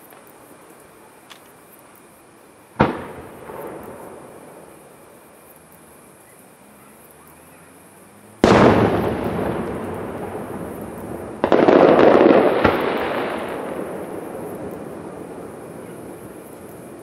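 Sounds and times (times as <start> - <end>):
firework bangs with rolling echo: 2.8 - 5.0, 8.4 - 17.0.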